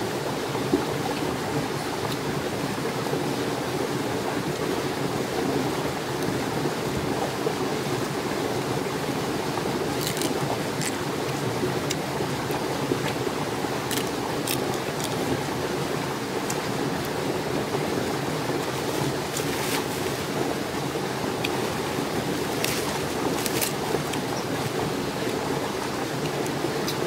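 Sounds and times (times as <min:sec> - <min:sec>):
crab shell cracking: 0:09.9 - 0:11.0, 0:13.8 - 0:15.4, 0:22.4 - 0:24.2.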